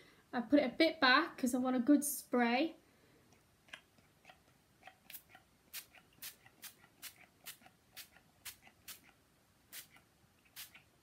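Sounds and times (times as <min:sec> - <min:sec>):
spray bottle spritzing: 0:05.1 - 0:09.1, 0:09.7 - 0:10.9.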